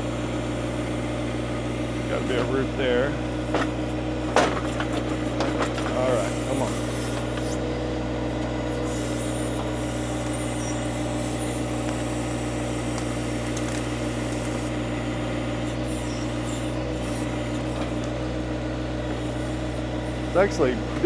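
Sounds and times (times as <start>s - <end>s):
tractor diesel engine under load: 0.0s - 21.0s.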